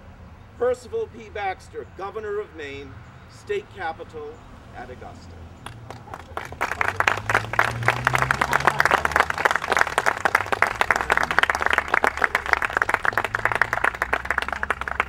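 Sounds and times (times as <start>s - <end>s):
audience applauding: 5.6s - 15.0s.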